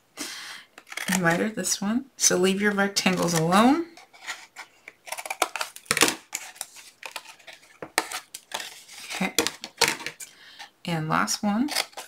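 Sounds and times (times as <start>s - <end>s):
paper rustling: 3.1s - 10.3s
scissors cutting cardstock: 11.7s - 12.0s.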